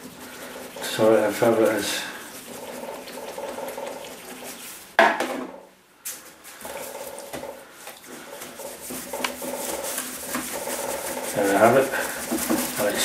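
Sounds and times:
brush scraping in a container: 0.0 - 5.0, 8.0 - 13.0.

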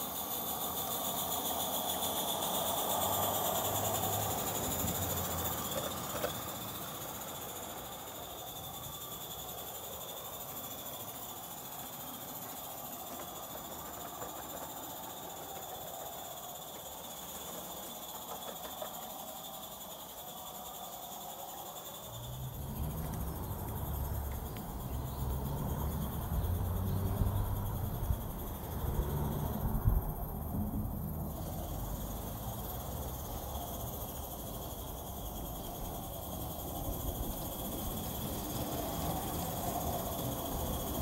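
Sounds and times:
steam locomotive hissing: 0.0 - 22.4, 30.7 - 41.0.

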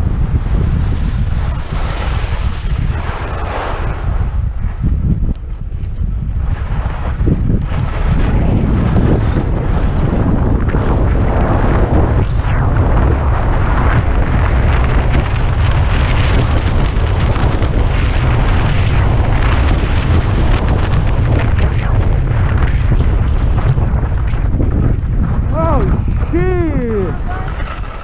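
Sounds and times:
skis scraping over snow: 0.0 - 28.0
wind buffeting microphone: 0.0 - 28.0.

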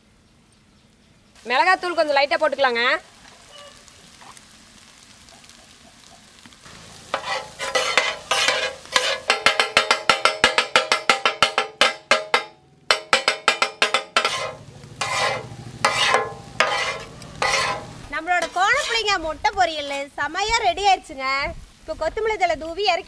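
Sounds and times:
metal spatulas clacking in a pan: 7.1 - 19.1.

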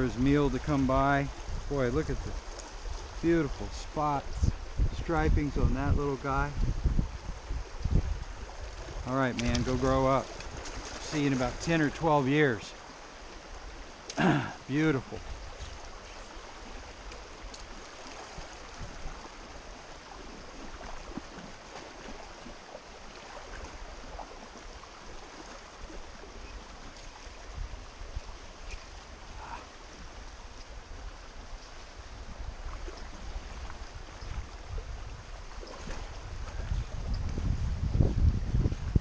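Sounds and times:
creek water rippling: 0.0 - 39.0
faint small splashes and ticks: 2.3 - 3.2, 7.7 - 11.2, 15.4 - 27.5.

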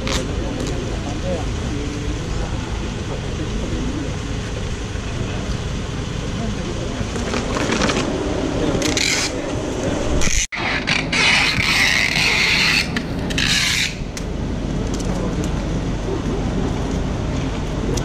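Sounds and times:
low steady rumble: 0.0 - 18.0
packing tape rasping on cardboard: 10.2 - 14.0.

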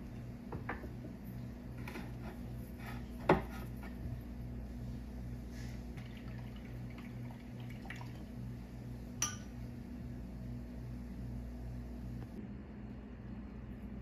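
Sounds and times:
low steady hum: 0.0 - 14.0
spoon clinking on ceramic: 9.2 - 9.5.

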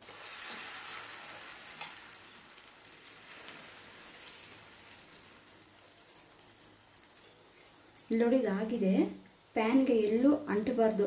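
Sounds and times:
batter sizzling in a pan: 0.0 - 8.8.

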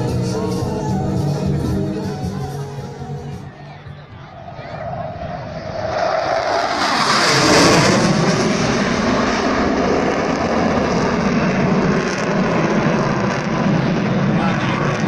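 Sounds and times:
military jet flying over: 3.6 - 15.0.

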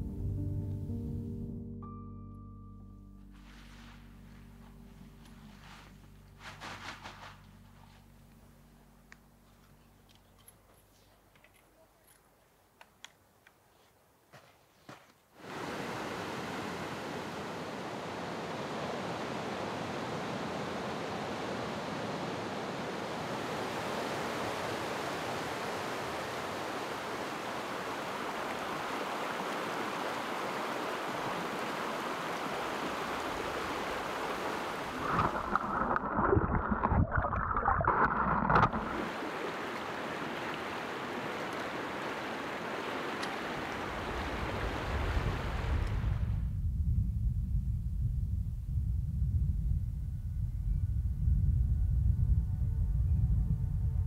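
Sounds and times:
river rushing over rocks: 15.4 - 36.9, 38.2 - 44.9.

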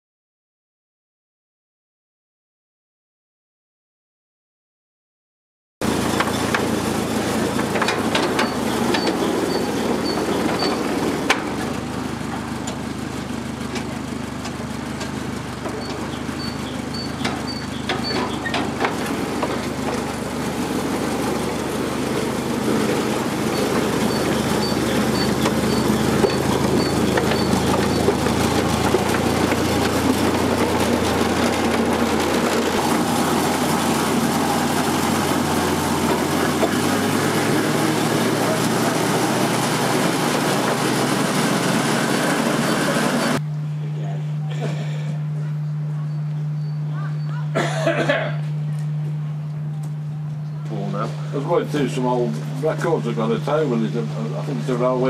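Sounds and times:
small locomotive engine running: 5.8 - 44.0.

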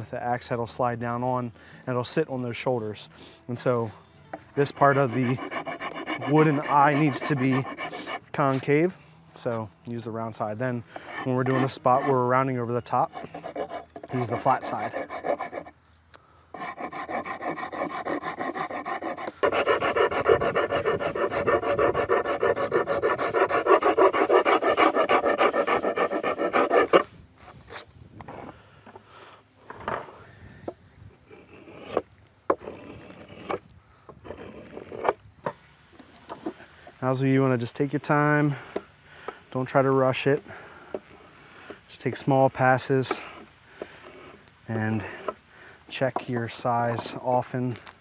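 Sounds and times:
rasp filing wood: 4.6 - 8.6, 10.9 - 15.8, 16.5 - 27.1, 31.3 - 33.6, 43.0 - 45.4.

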